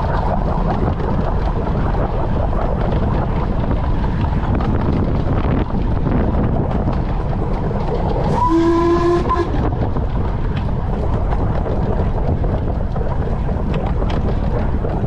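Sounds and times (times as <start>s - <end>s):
train rumble and rattle: 0.0s - 15.0s
steam whistle blast: 8.3s - 9.6s.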